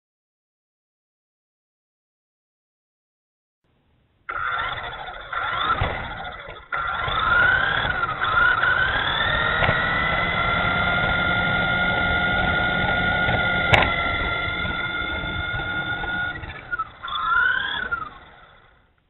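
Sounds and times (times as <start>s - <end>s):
tyres rumbling on concrete: 4.3s - 18.7s
electric motor whining: 4.3s - 19.0s.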